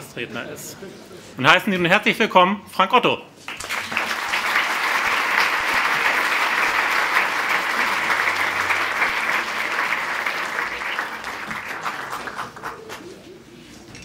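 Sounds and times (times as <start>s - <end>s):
audience applauding: 3.5s - 13.2s.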